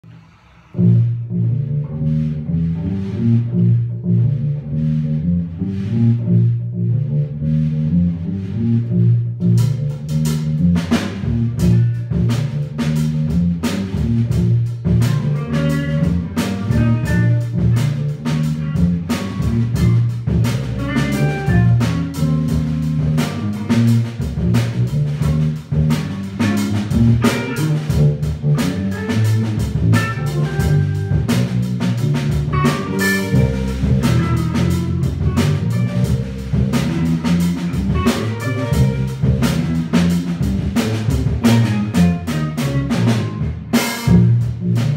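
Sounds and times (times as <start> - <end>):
drum kit strokes: 0.0 - 44.9
electric bass line: 0.0 - 44.9
electric guitar notes: 14.4 - 24.6, 25.9 - 44.7.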